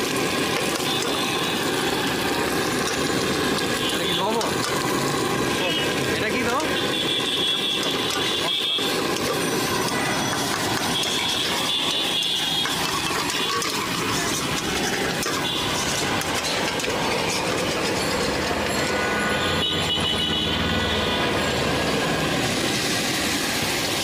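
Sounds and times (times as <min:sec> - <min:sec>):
metal spatula scraping a wok: 0:07.5 - 0:19.5
metal squealing on metal: 0:07.8 - 0:20.0.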